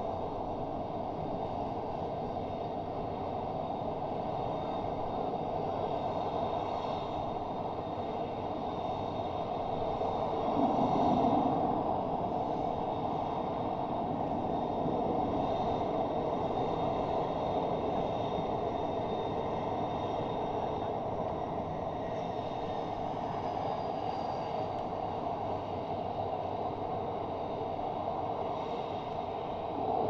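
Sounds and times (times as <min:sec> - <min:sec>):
faint high whine: 0:00.0 - 0:30.0
distant jet engines rumbling: 0:00.1 - 0:30.0.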